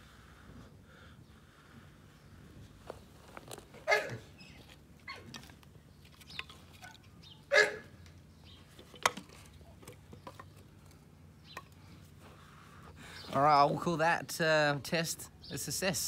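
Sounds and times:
dog barking: 0:03.9 - 0:04.2, 0:06.9 - 0:07.9.

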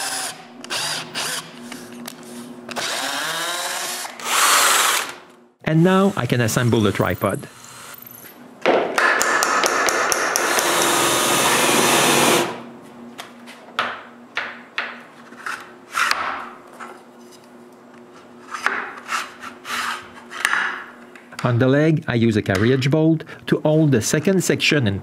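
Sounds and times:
cordless drill into wood: 0:02.8 - 0:05.2, 0:10.4 - 0:12.6.

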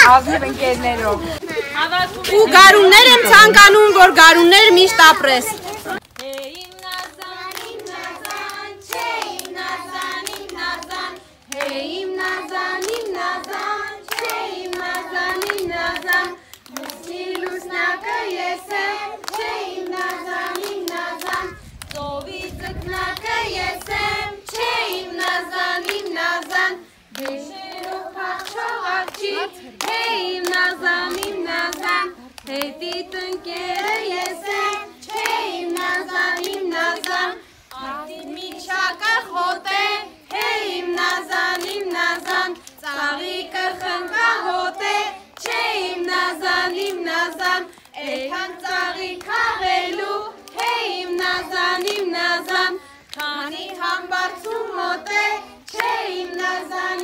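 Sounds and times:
children clapping in time: 0:04.3 - 0:57.0
young children singing: 0:22.7 - 0:57.0.

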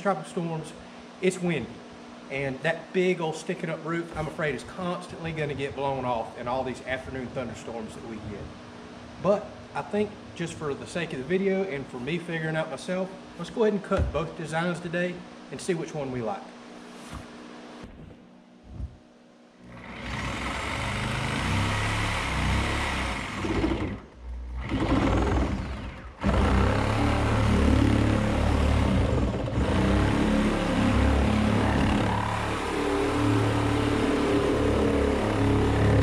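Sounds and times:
reciprocating saw cutting plastic: 0:19.6 - 0:36.0.

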